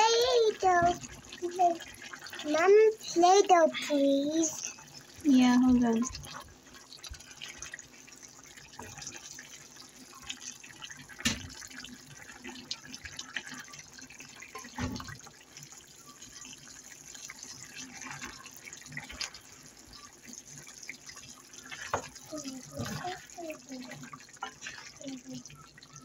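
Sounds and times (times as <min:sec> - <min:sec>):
sauce bubbling in a pan: 0:00.0 - 0:26.0
wooden spatula stirring: 0:11.6 - 0:25.9.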